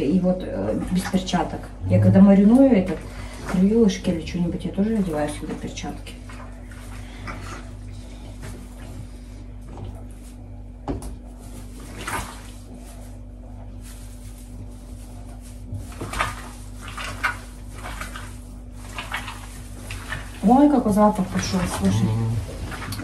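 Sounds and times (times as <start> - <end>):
steady low hum: 0.0 - 23.0
soft scraping and rustling: 11.1 - 23.0.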